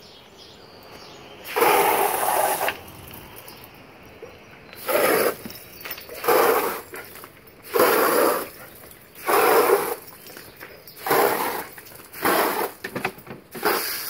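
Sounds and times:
hose nozzle water spray: 0:01.4 - 0:02.9, 0:04.8 - 0:05.5, 0:06.1 - 0:06.9, 0:07.6 - 0:08.5, 0:09.2 - 0:10.1, 0:11.0 - 0:14.0.

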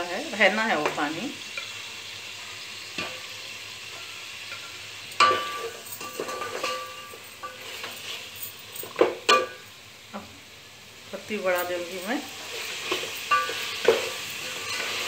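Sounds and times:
soft sizzle: 0:00.0 - 0:15.0
spatula scraping a pot: 0:05.4 - 0:08.4, 0:12.4 - 0:15.0.

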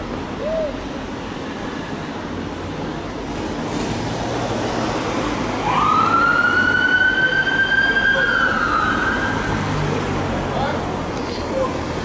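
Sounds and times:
road traffic noise: 0:00.0 - 0:12.0
emergency vehicle siren wailing: 0:05.6 - 0:09.8.

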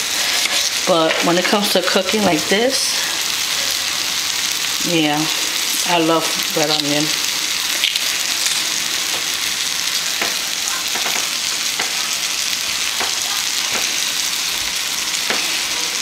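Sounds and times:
food sizzling in a frying pan: 0:00.0 - 0:16.0
pops and crackles: 0:07.7 - 0:09.3.

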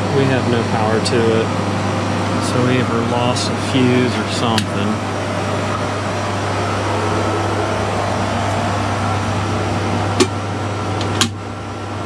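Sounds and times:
refrigeration equipment humming: 0:00.0 - 0:12.0.

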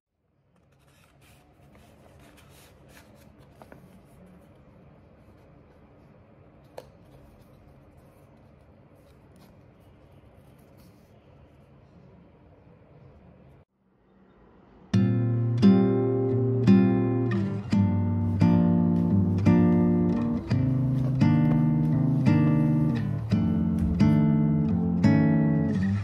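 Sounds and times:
low room hum: 0:00.1 - 0:26.0
paper envelope rustling: 0:00.6 - 0:11.2.

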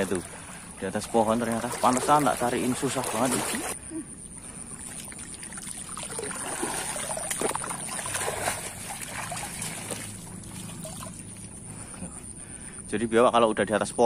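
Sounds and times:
small water splashes: 0:00.0 - 0:03.8, 0:04.4 - 0:11.8
stream water sloshing: 0:00.0 - 0:12.8.

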